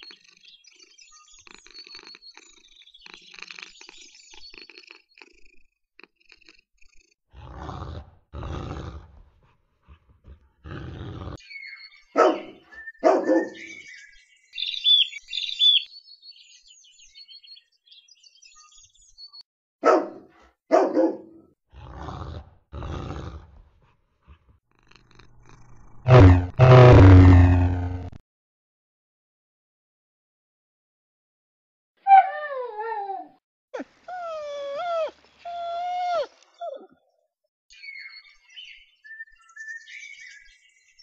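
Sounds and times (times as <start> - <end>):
bird chirps: 0.0 - 5.6, 11.4 - 19.4, 37.7 - 41.0
cartoon cat snoring: 1.4 - 11.4, 21.8 - 28.2
short pitched animal calls: 24.9 - 28.2.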